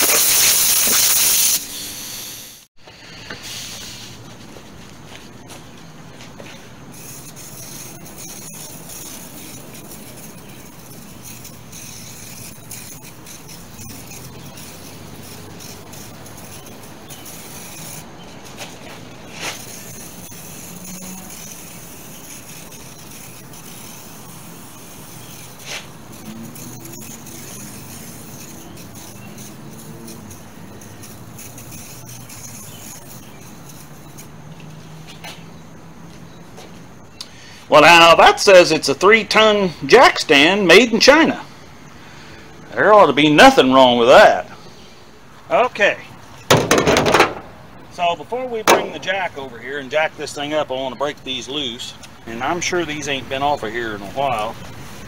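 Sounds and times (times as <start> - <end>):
aerosol can spraying: 0.0 - 2.7, 6.9 - 35.2, 52.9 - 55.0.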